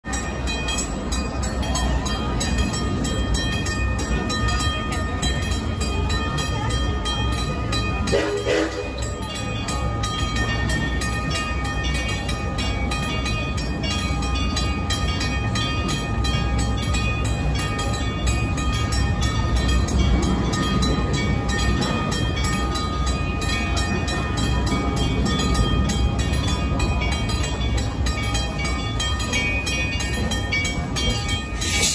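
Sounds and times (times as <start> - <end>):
railroad crossing bell ringing: 0.0 - 31.9.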